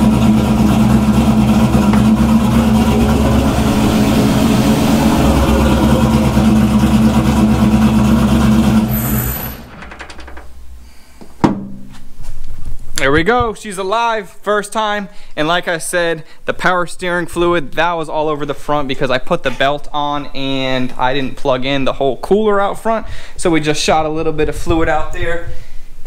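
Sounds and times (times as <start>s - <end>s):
car engine idling: 0.0s - 9.8s.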